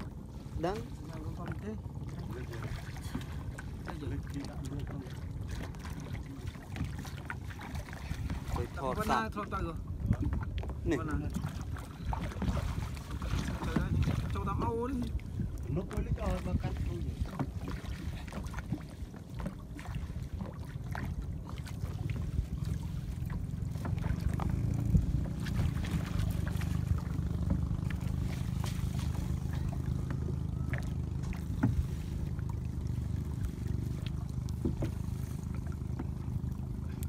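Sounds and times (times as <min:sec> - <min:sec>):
steady low rumble: 0:00.0 - 0:37.0
water sloshing and splashing: 0:00.0 - 0:37.0
net knocking against boat: 0:12.2 - 0:14.8, 0:23.7 - 0:31.9, 0:34.6 - 0:35.1.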